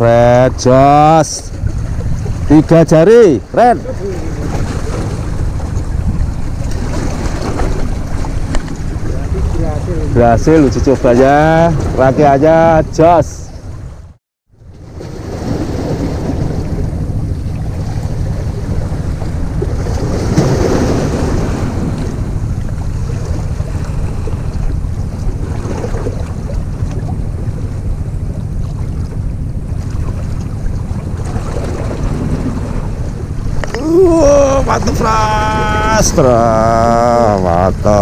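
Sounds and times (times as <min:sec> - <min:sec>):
wind buffeting microphone: 0:00.0 - 0:14.0, 0:14.9 - 0:38.0
sea water washing against rocks: 0:03.5 - 0:12.2, 0:14.9 - 0:27.9, 0:28.6 - 0:37.8.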